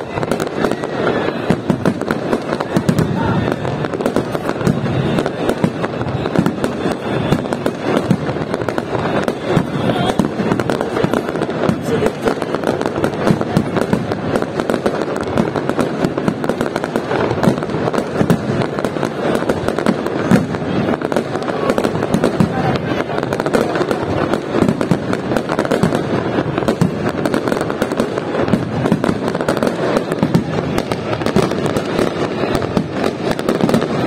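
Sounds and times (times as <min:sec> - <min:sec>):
fireworks bursting and crackling: 0:00.0 - 0:34.0.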